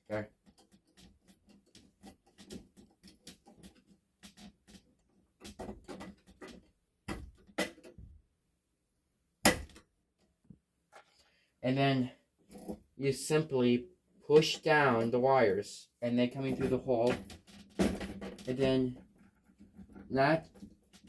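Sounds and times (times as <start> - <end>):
screwdriver ticking and scraping: 0.4 - 5.0
metal and plastic knocks: 16.5 - 21.0.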